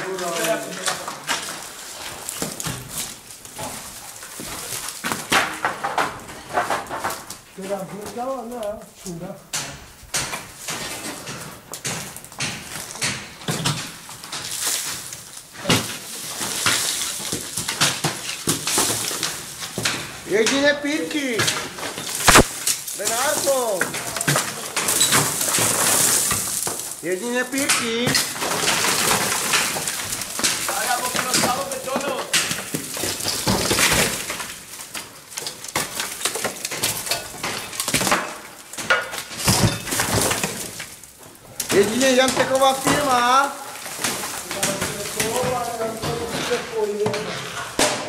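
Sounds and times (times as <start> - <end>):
ceiling plaster scraping and cracking: 0.0 - 48.0
plaster debris crumbling down: 0.0 - 48.0
sharp knocks: 9.5 - 14.0.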